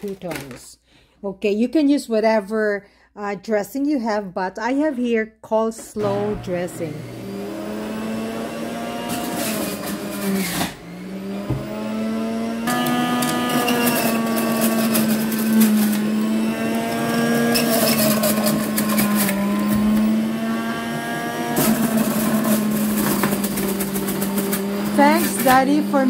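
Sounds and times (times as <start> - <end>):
juicer motor hum: 6.0 - 26.0.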